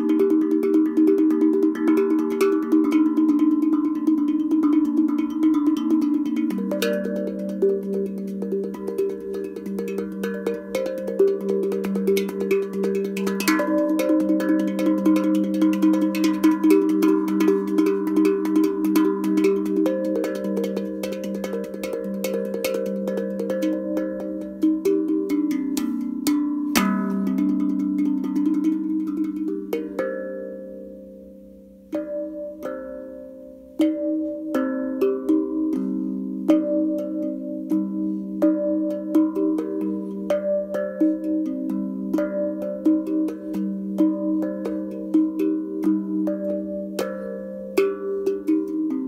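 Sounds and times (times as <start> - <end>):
steel tongue drum notes: 0.0 - 49.0.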